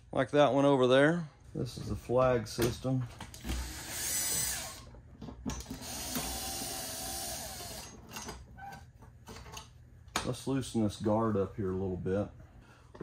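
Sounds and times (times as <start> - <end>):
power drill whining: 3.4 - 4.9, 5.6 - 8.0.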